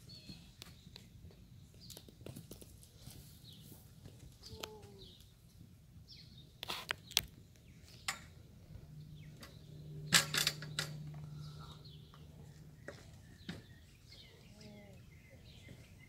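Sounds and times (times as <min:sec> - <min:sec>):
low steady hum: 0:07.4 - 0:16.0.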